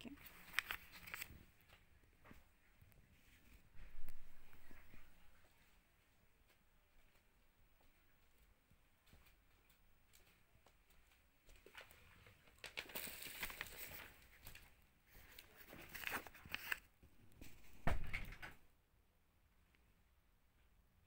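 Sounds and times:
paper leaflet rustling: 0.2s - 1.6s, 11.6s - 16.9s.

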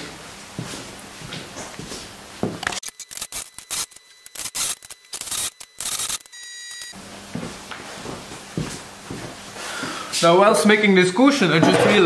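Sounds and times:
high steady tone: 2.8s - 7.0s.

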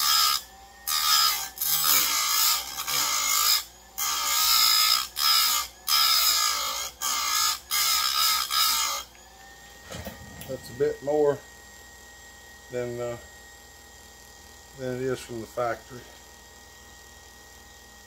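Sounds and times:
grinder wheel grinding chain teeth: 0.0s - 9.2s.

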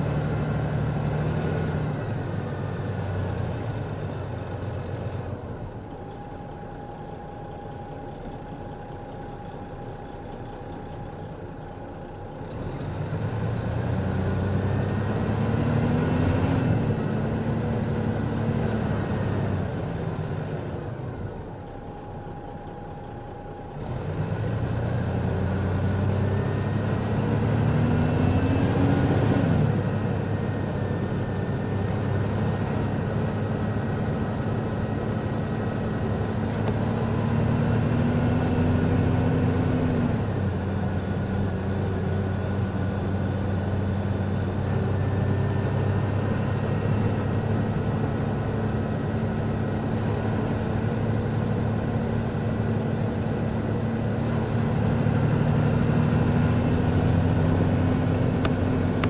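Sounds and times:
diesel engine idling: 1.9s - 15.9s, 16.8s - 59.0s
engine revving with turbo whistle: 12.5s - 20.7s, 23.7s - 59.0s.

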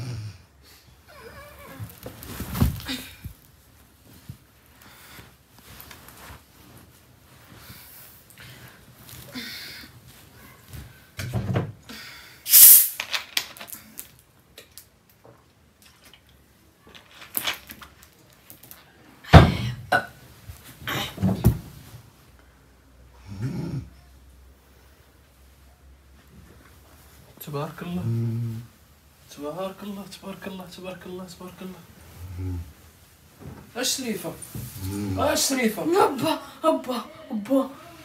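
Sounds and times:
blanket rustling: 1.4s - 9.3s.

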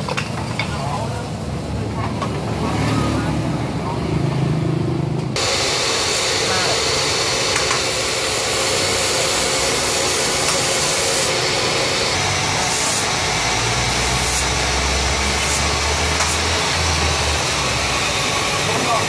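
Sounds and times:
motor running steadily: 5.2s - 19.0s
low drone: 5.4s - 18.7s
loud even hiss: 5.4s - 19.0s.

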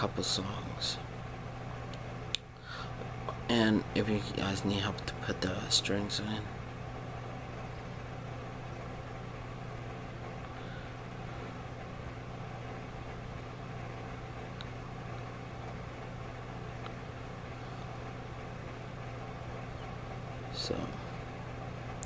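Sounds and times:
low hum: 0.0s - 22.0s.

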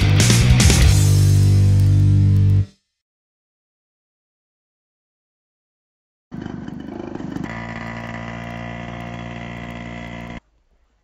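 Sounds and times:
motor humming: 6.4s - 10.4s.

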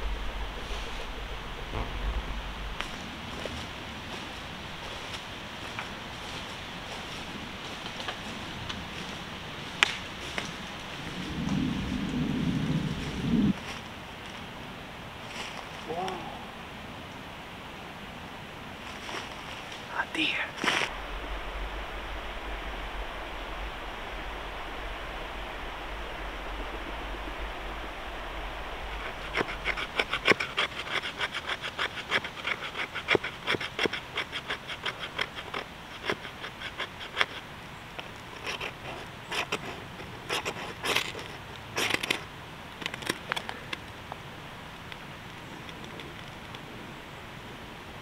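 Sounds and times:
background hiss: 0.0s - 48.0s
knife scraping wood: 29.0s - 37.5s, 38.1s - 42.3s.

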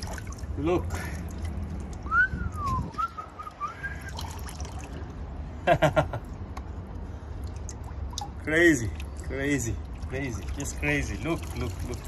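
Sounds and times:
person whistling: 2.1s - 4.2s
person chuckling: 5.6s - 6.4s
water trickling faintly: 7.1s - 12.0s.

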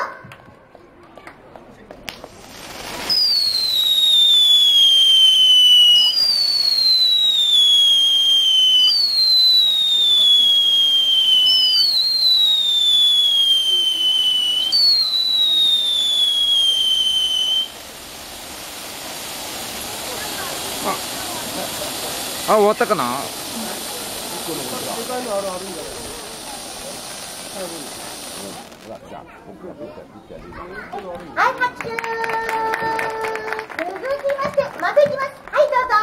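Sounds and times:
firework fountains hissing: 1.9s - 29.2s, 31.4s - 36.0s
firework whistles falling in pitch: 2.4s - 28.9s.

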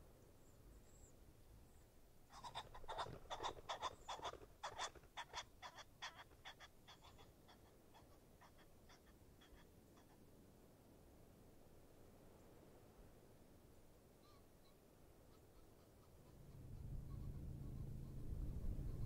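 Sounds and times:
bird repeated short calls: 2.3s - 10.2s.

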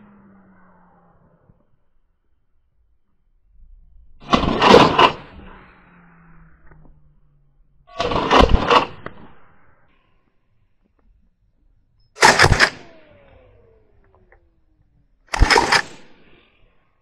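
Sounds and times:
suppressed rifle bursts: 12.2s - 14.6s, 15.3s - 16.5s.

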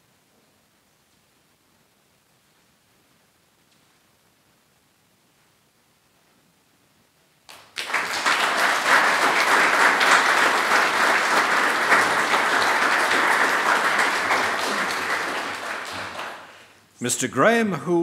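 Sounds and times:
audience applauding: 7.5s - 16.7s.

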